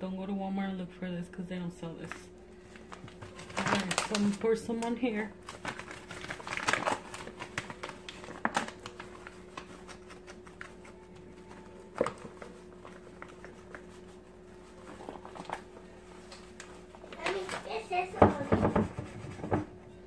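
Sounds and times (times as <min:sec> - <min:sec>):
faint steady hum: 0:00.0 - 0:20.0
paper bag rustling: 0:02.6 - 0:18.5.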